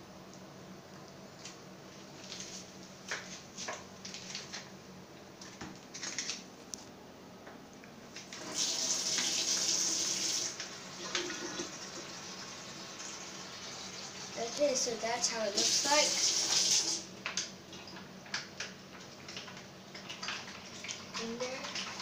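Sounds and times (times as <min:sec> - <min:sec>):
tap water running: 0:08.2 - 0:22.0.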